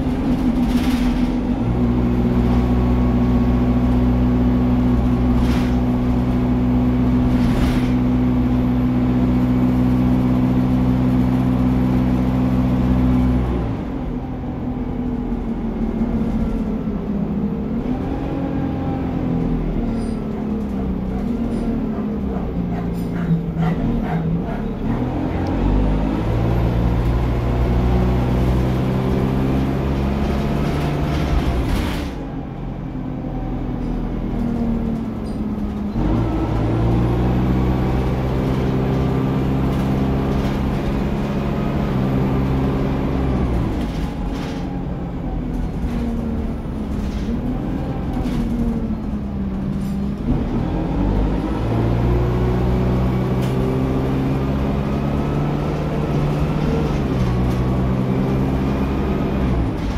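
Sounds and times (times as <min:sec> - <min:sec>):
bus diesel engine accelerating: 0:00.0 - 0:59.9.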